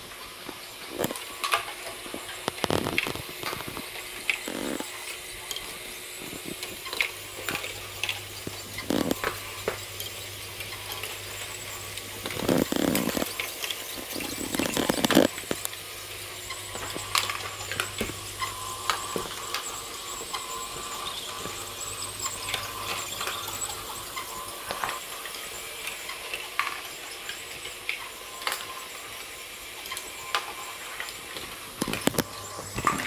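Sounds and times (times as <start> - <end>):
electric motors and gears whirring: 0.0 - 33.0
plastic balls clicking and clattering: 12.2 - 15.8.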